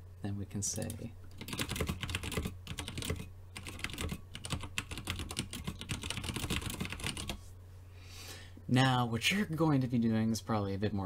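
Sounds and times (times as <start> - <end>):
typing on a computer keyboard: 0.8 - 7.4.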